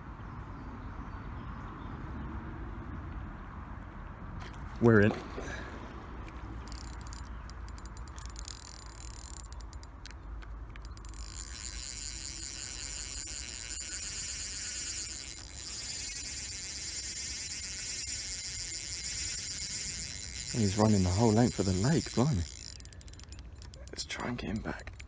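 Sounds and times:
fishing reel drag clicking buzz: 6.6 - 25.0.

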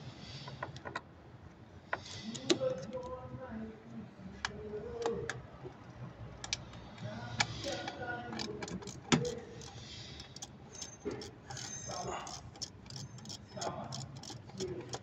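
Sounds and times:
ratchet driver clicking: 6.4 - 15.0.

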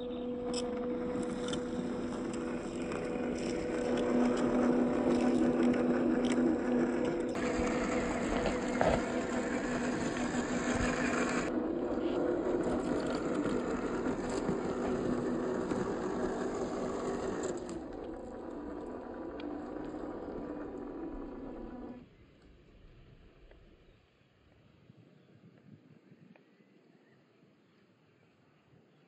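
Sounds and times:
toy car motor whine: 0.0 - 22.0.

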